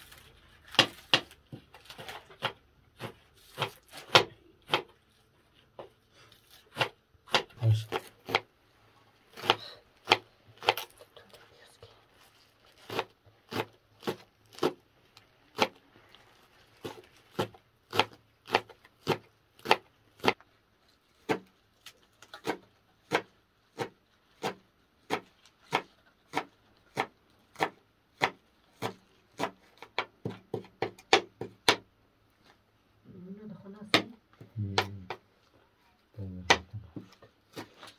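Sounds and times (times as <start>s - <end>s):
knife chopping on cutting board: 0.7s - 5.0s, 6.7s - 8.5s, 9.3s - 10.9s, 12.8s - 14.8s, 16.8s - 20.4s, 22.4s - 31.8s.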